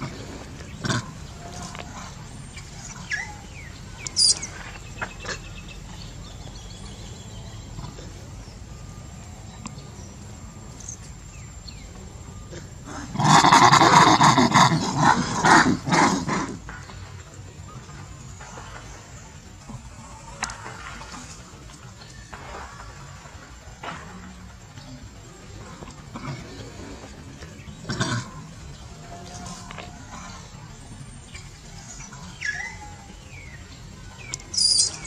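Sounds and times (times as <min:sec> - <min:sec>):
faint bird chirps: 0:00.0 - 0:15.4, 0:24.8 - 0:35.0
baby monkey screaming: 0:02.8 - 0:04.6, 0:34.4 - 0:35.0.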